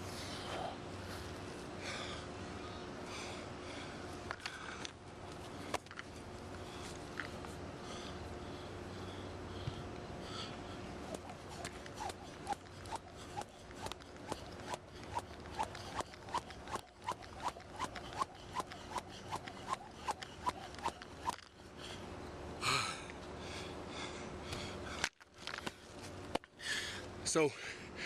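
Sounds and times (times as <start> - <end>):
jump rope slapping turf: 11.0 - 21.6.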